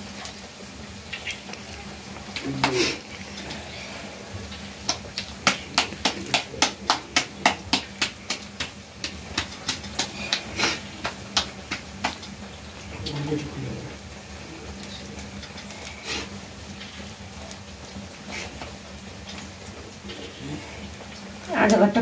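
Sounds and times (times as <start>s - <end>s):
hands slapping dough: 4.8s - 12.4s.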